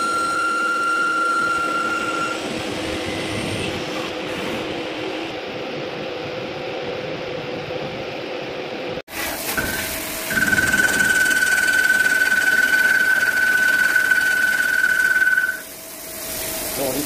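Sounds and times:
lathe high-pitched whine: 0.0s - 4.2s, 9.5s - 15.9s
low workshop hum: 0.0s - 17.0s
coolant spray hiss: 15.6s - 17.0s.

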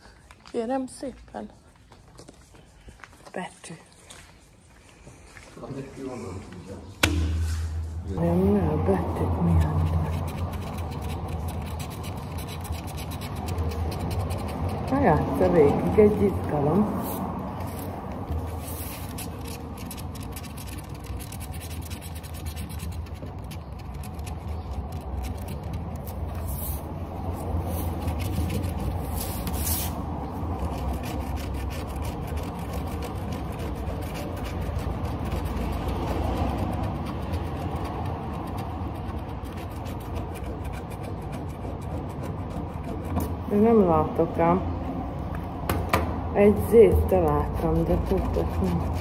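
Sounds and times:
scratching lottery ticket: 9.6s - 43.9s, 46.8s - 49.0s.

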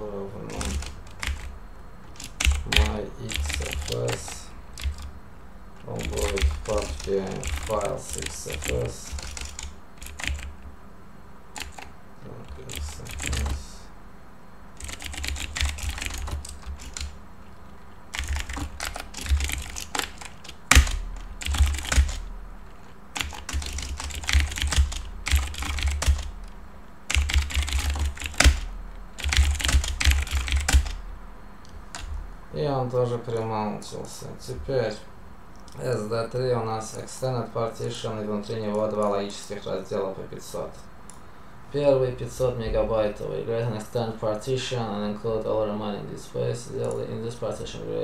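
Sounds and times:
computer keyboard typing: 0.4s - 5.1s, 5.8s - 10.6s, 11.5s - 13.8s, 14.8s - 17.2s, 18.1s - 26.5s, 27.1s - 31.0s, 31.9s - 32.2s.

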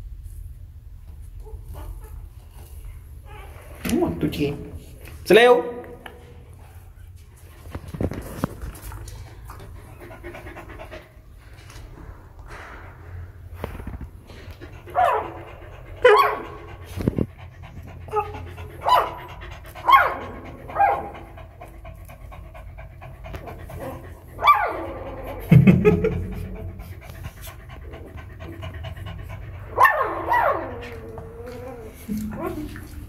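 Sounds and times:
dog panting: 8.8s - 11.9s, 14.3s - 33.0s.

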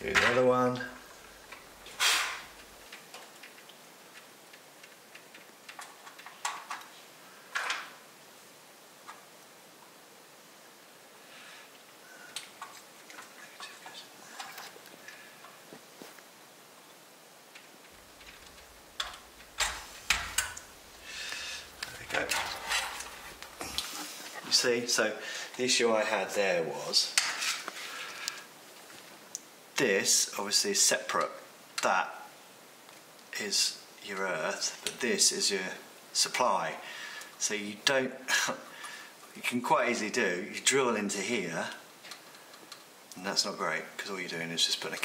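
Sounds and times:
scraping rustle: 0.0s - 3.6s, 17.6s - 24.7s, 27.2s - 29.2s
clicks and knocks in metal chassis: 18.0s - 20.9s.

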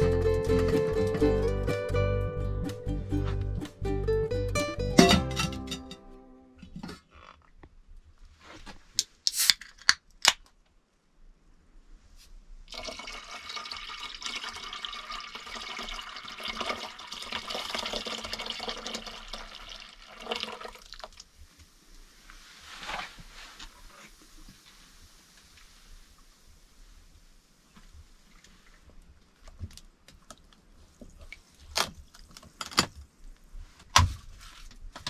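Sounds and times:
liquid pouring into pot: 12.7s - 21.2s
drink foaming: 12.7s - 21.3s.

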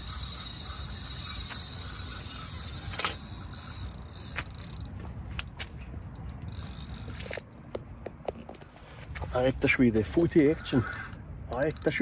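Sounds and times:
fishing reel clicker ratcheting: 0.0s - 5.5s, 6.1s - 7.4s, 10.8s - 12.0s.

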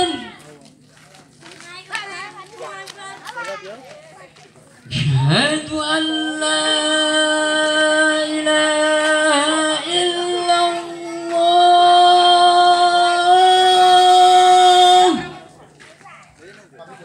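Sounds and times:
person chanting a held note: 5.0s - 15.5s.

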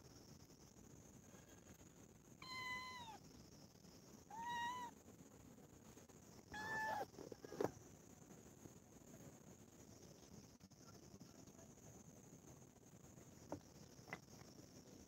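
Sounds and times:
kitten meowing: 2.4s - 3.2s, 4.3s - 4.9s, 6.6s - 7.1s.

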